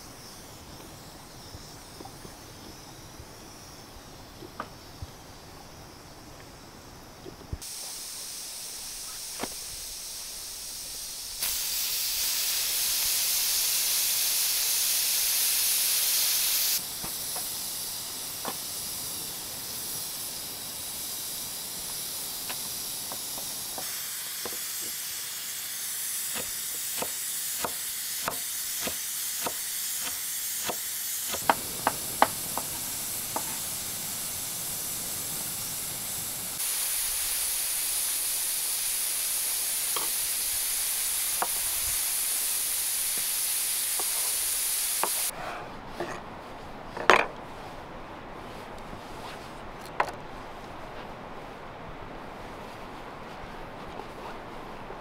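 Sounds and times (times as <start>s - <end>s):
pressure cooker steam hissing: 0.0s - 6.2s, 7.6s - 45.4s
sharp clicks and knocks: 26.4s - 33.6s.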